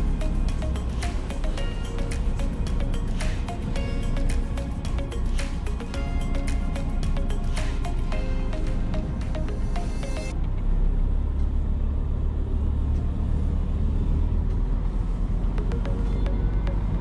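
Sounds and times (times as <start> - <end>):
background music: 0.0 - 10.8, 15.3 - 17.0
diesel truck engine rumbling: 0.0 - 17.0.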